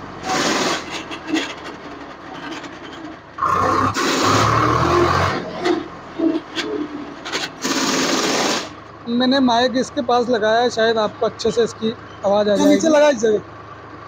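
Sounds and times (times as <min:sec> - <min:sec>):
tractor engine revving: 0:00.0 - 0:14.0
drivetrain scraping and knocking: 0:05.4 - 0:07.7.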